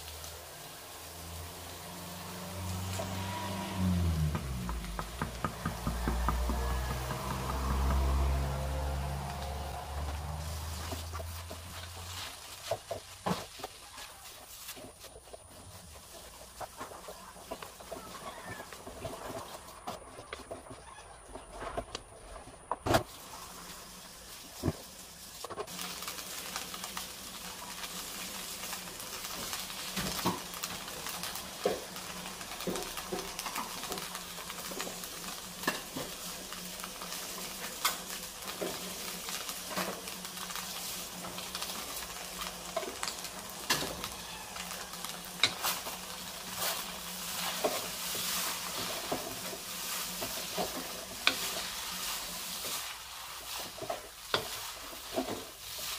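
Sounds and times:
noodles sizzling in a wok: 0.0 - 19.9, 23.0 - 55.9
wooden spatula scraping a pan: 2.2 - 20.9, 42.7 - 55.9.

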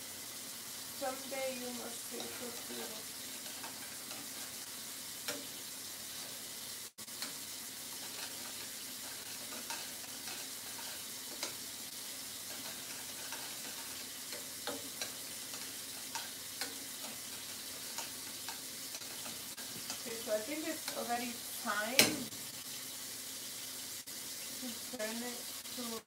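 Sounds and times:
cooking pot hissing: 0.0 - 26.0
spoon stirring rice in pot: 1.9 - 4.6, 7.1 - 21.1.

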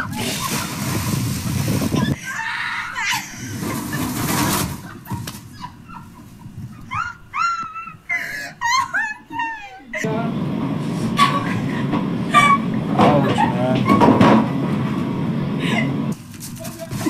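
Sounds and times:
high-pitched yelps: 2.1 - 3.5, 6.7 - 10.0.

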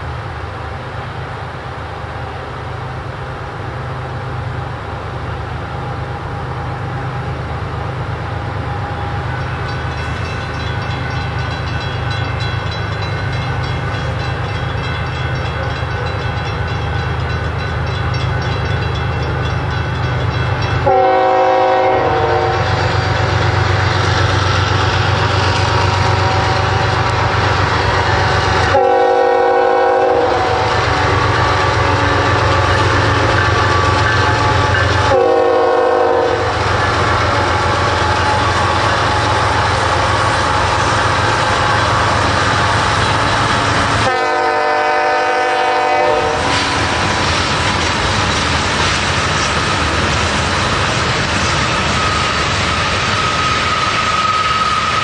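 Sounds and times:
diesel locomotive engines running: 0.0 - 55.0
train horn blasts: 20.8 - 23.3, 26.0 - 27.3, 28.2 - 30.9, 33.4 - 43.0, 43.8 - 46.8.

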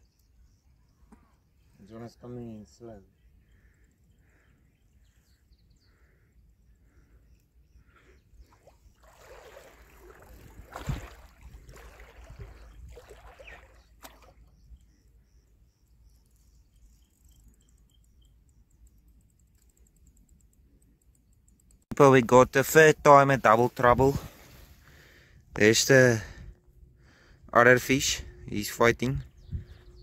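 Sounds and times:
wind rumble on microphone: 10.0 - 13.2, 28.2 - 30.0.

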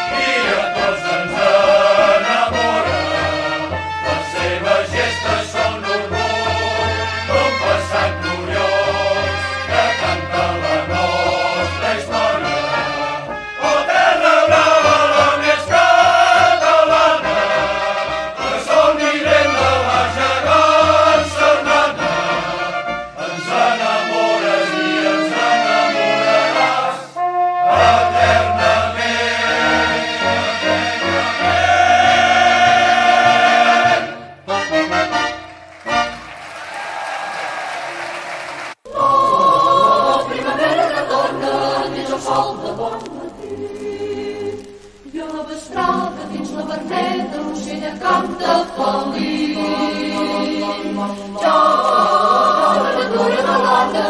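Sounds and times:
choir singing: 0.0 - 36.2, 36.9 - 54.0
instrumental accompaniment: 0.0 - 36.6.

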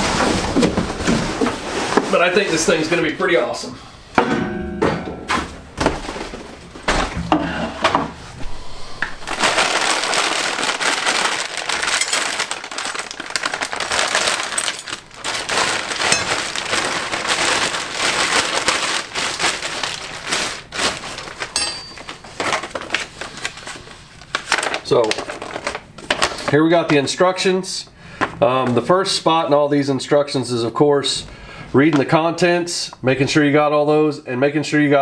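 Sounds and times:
plastic bags and paper crinkling: 0.0 - 3.6, 5.8 - 7.3, 8.4 - 27.4.

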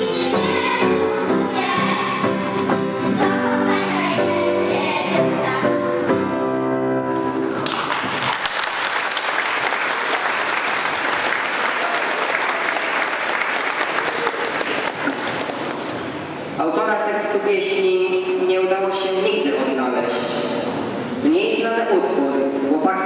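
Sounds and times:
song with instrumental accompaniment: 0.0 - 7.6
audience applause: 7.6 - 16.1.

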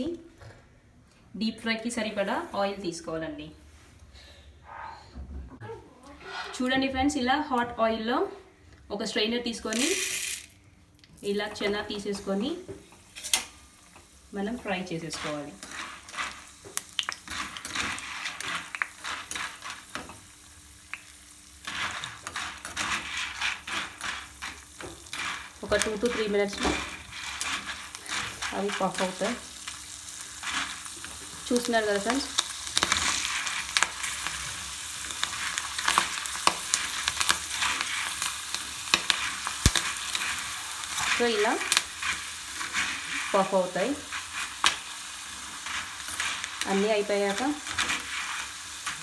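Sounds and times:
chickpeas sizzling in hot oil: 9.5 - 49.0
oil popping and crackling: 15.3 - 49.0.

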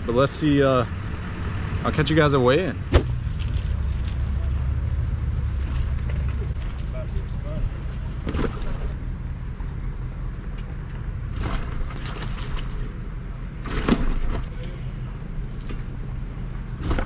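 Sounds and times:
vehicle engine idling: 3.0 - 11.4
gear rustling and scraping: 3.1 - 7.0.

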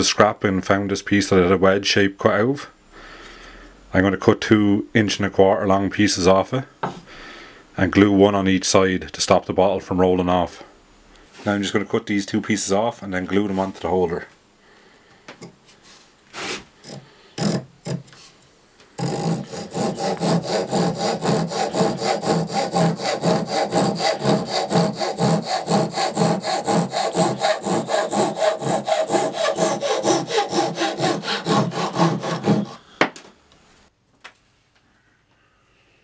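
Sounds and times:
hand saw cutting wood: 16.4 - 18.3, 19.0 - 32.8.

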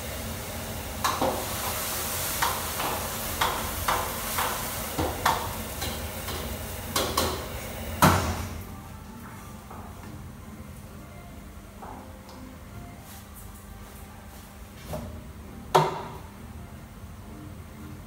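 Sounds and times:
food sizzling in a wok: 0.0 - 8.5.

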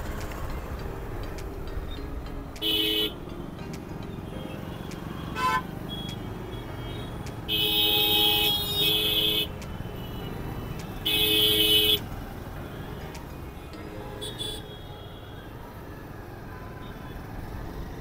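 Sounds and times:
traffic engines and tyres: 0.0 - 18.0
vehicle horns honking: 2.6 - 3.2, 4.4 - 12.1, 14.2 - 15.4.

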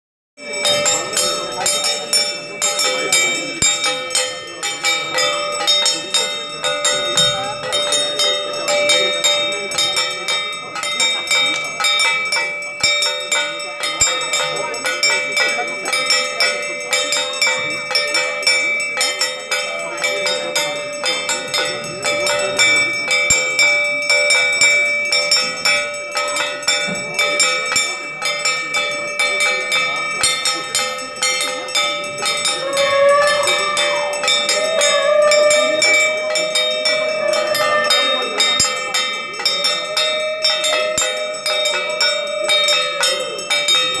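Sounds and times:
bell ringing rapidly: 0.4 - 44.0
wavering tone: 30.6 - 43.7.

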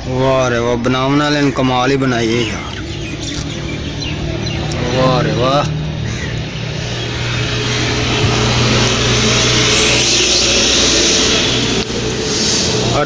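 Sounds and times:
tractor engine droning: 0.0 - 13.0
rushing hiss: 6.6 - 13.0.

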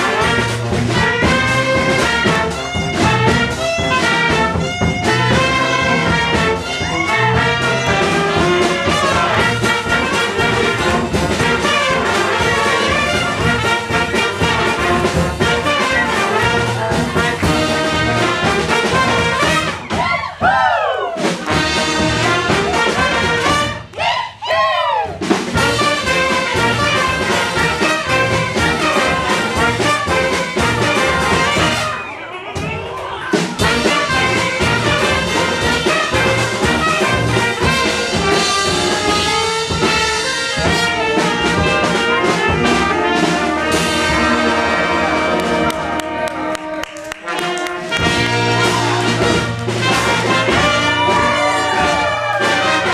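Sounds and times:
brass band playing: 0.0 - 52.9.

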